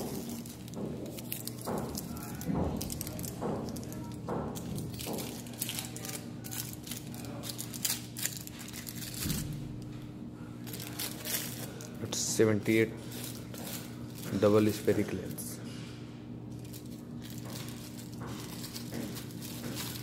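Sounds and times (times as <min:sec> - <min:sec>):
steady low hum: 0:00.0 - 0:20.0
clicks taps and rustles of handling: 0:16.6 - 0:20.0.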